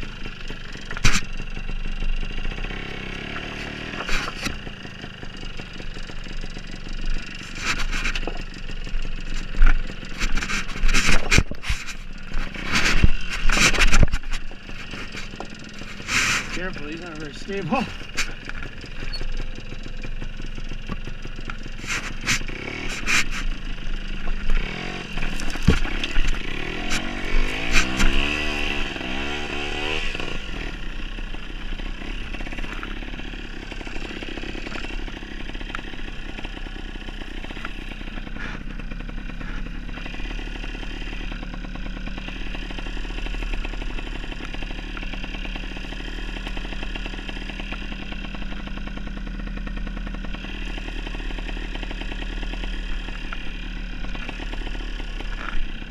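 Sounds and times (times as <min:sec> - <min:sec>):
motorcycle engine revving: 0:00.0 - 0:55.9
bike clattering over loose rocks: 0:25.2 - 0:28.4.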